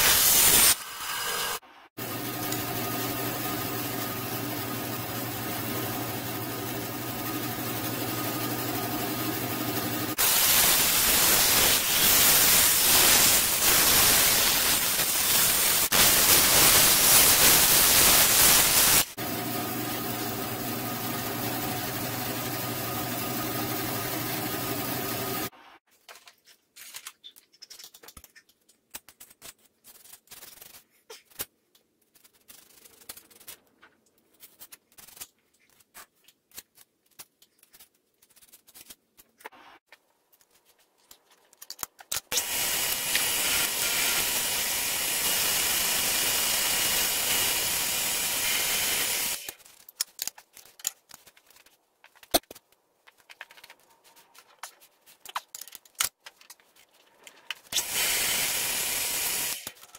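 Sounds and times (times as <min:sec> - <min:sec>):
power tool running: 0:00.0 - 0:25.5, 0:42.3 - 0:49.5, 0:57.7 - 0:59.8.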